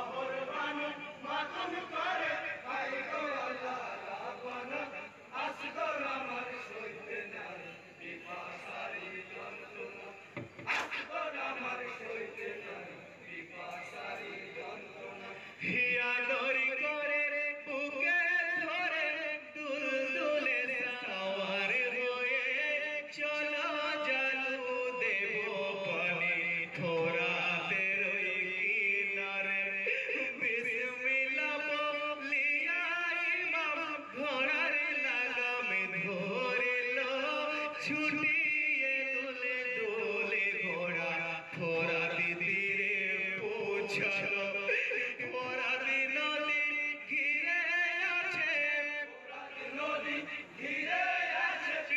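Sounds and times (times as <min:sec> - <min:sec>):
men chanting: 0:00.0 - 0:51.9.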